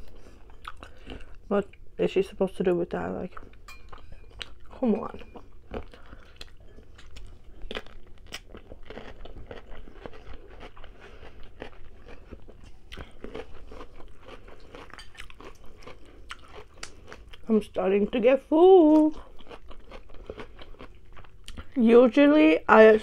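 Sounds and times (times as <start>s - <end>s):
crunchy chewing of cucumber: 3.4s - 17.5s, 18.9s - 21.8s.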